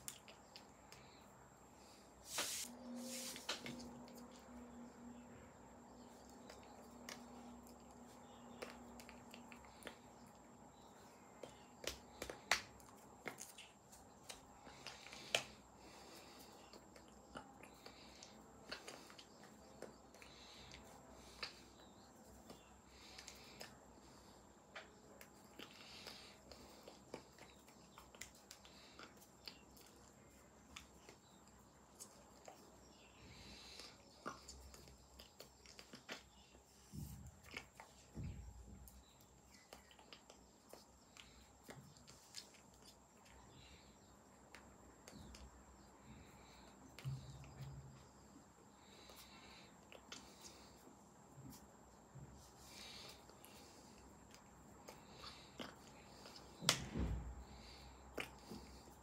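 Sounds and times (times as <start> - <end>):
faint lip and tongue clicks: 0.0 - 2.0, 6.0 - 59.0
faint steady hum: 0.0 - 59.0
hands tapping and brushing: 2.3 - 4.0
lips smacking: 49.0 - 50.8, 52.6 - 56.9, 57.7 - 59.0.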